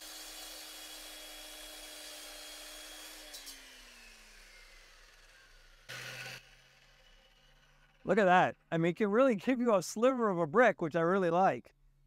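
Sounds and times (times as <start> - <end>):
concrete saw running: 0.0 - 8.3
saw motor spinning down whine: 3.1 - 8.0.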